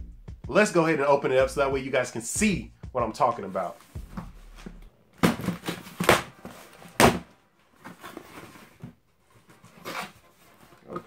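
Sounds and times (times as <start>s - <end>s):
cardboard flaps rustling: 3.6s - 11.0s.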